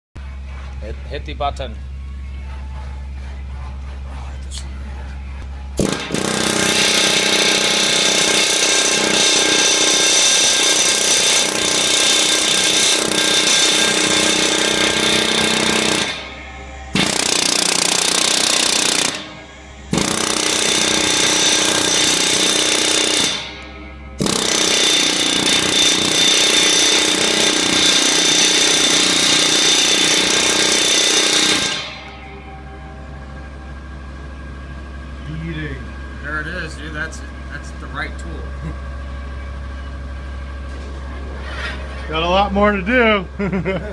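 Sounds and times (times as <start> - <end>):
pneumatic hammer hammering metal: 5.8 - 32.5
high metallic ringing: 5.8 - 36.2.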